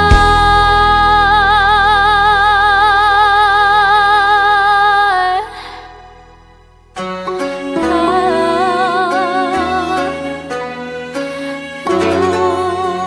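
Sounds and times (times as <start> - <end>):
low sustained accompaniment: 7.2 - 13.0
woman singing a long note: 7.8 - 10.4, 11.9 - 13.0.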